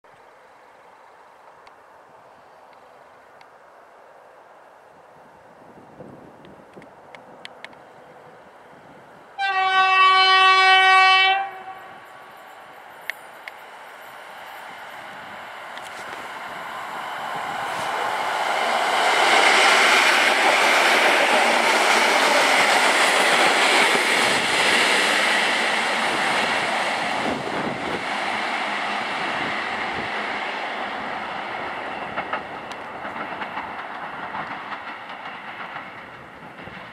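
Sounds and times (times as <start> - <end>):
train wheels on rails: 11.4 - 36.9
wheels clacking over rail joints: 15.7 - 28.8, 31.0 - 36.9.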